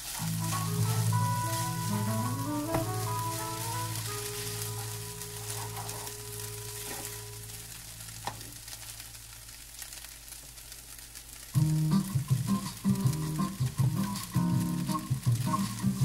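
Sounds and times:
quiet background music: 0:00.0 - 0:07.7, 0:11.6 - 0:16.0
noodles sizzling in a pan: 0:00.0 - 0:16.0.

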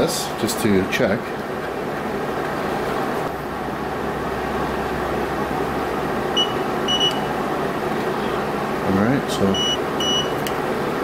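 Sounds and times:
steady background noise: 0:00.0 - 0:11.0
short high beeps: 0:09.6 - 0:10.4.

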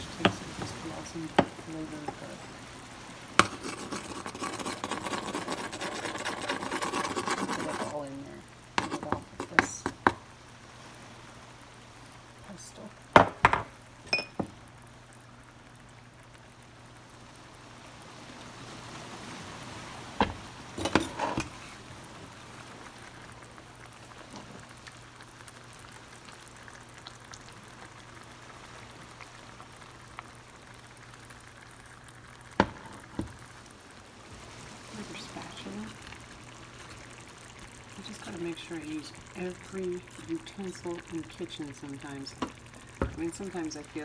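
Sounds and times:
sauce bubbling in a pot: 0:00.0 - 0:44.0.

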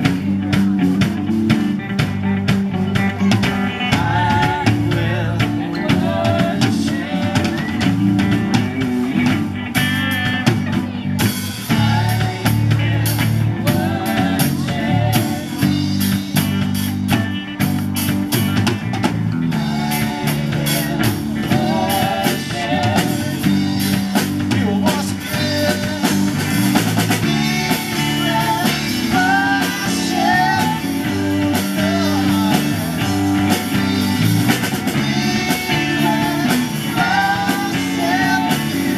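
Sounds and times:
drum kit: 0:00.0 - 0:38.9
electric guitars: 0:00.0 - 0:38.9
women singing: 0:03.7 - 0:08.5, 0:11.7 - 0:15.9, 0:19.5 - 0:26.4, 0:27.2 - 0:38.9.

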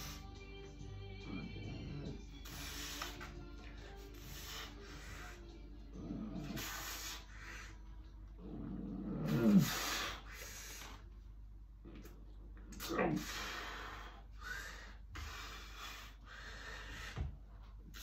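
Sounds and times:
man breathing hard: 0:00.0 - 0:00.4, 0:01.5 - 0:05.7, 0:06.4 - 0:08.1, 0:09.4 - 0:11.1, 0:13.1 - 0:18.0.

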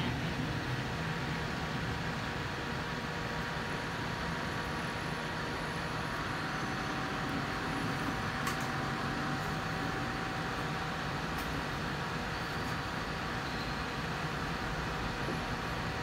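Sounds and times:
fan rushing air: 0:00.0 - 0:16.0.

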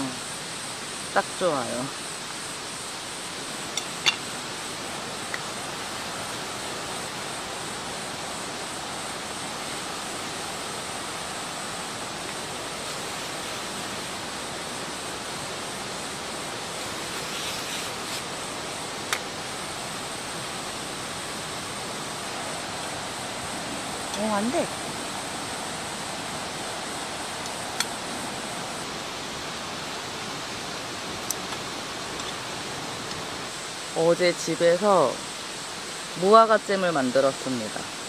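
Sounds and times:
stream rushing: 0:00.0 - 0:38.0.

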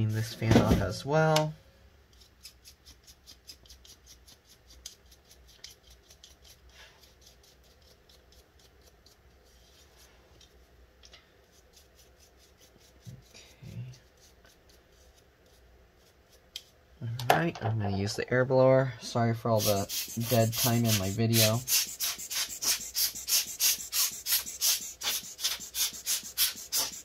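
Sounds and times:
fan ticking and scratching: 0:19.5 - 0:27.0.

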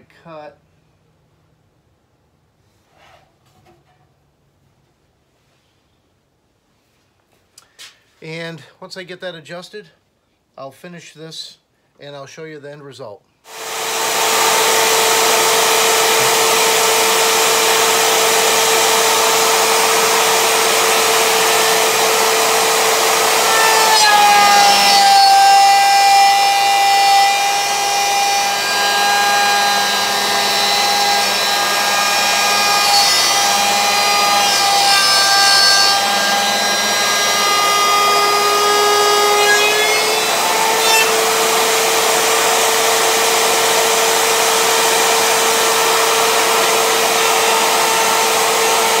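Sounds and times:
router whining: 0:13.5 - 0:49.0.

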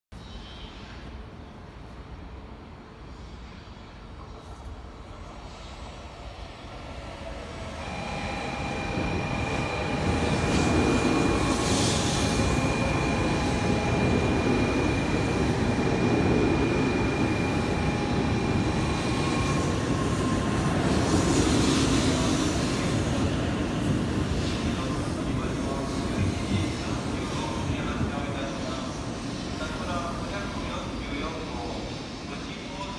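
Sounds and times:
high-pitched whine: 0:07.2 - 0:28.6.

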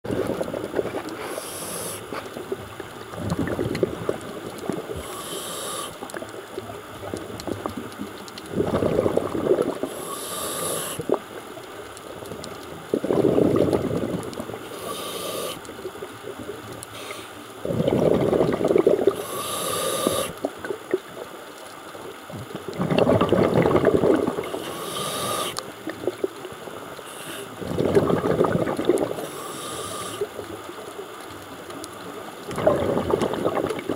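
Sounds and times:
exhaled bubbles rumbling: 0:00.0 - 0:33.9
regulator inhale hiss: 0:01.0 - 0:02.3, 0:04.9 - 0:06.1, 0:09.8 - 0:11.2, 0:14.6 - 0:15.7, 0:16.9 - 0:17.5, 0:19.1 - 0:20.4, 0:24.4 - 0:25.7, 0:27.0 - 0:27.7, 0:29.1 - 0:30.4.

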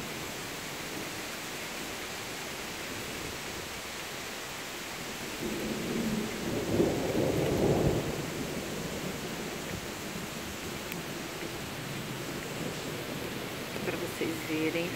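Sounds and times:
rain falling: 0:00.0 - 0:14.9
low thunder rumble: 0:05.4 - 0:14.9.

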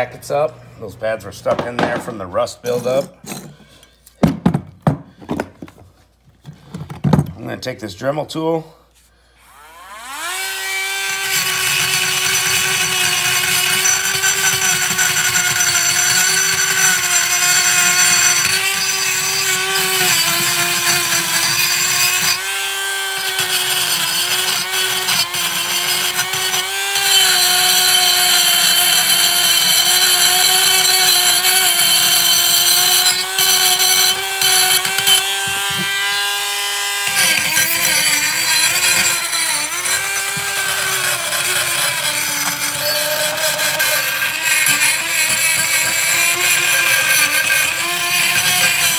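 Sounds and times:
gritty scraping of rust: 0:01.0 - 0:03.9, 0:23.4 - 0:48.9
rotary tool high whine: 0:09.4 - 0:48.9.

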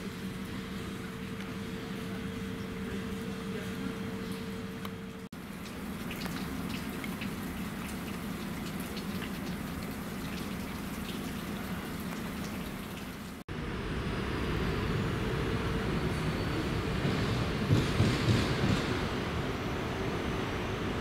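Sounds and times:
steady low hum: 0:00.0 - 0:21.0
rain dripping: 0:05.4 - 0:13.4
loud steady low rumble: 0:13.4 - 0:21.0.

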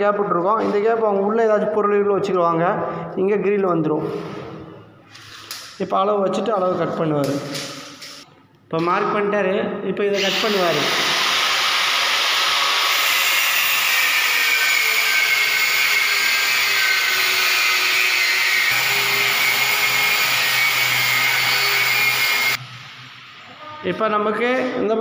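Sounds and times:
angle grinder cutting steel: 0:10.2 - 0:22.6.

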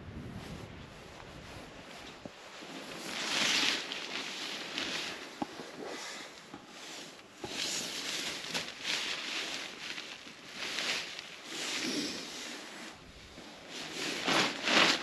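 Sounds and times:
nylon fabric rustling: 0:00.9 - 0:15.0.

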